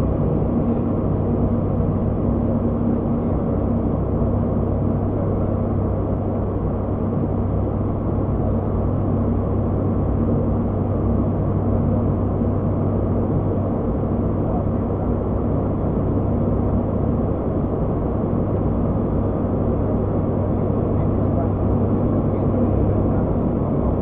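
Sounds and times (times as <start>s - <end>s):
turboprop cockpit drone: 0.0s - 24.0s.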